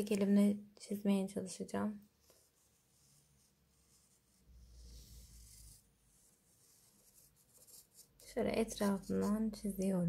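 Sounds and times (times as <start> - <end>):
marker pen scratching cardboard: 2.4 - 10.0.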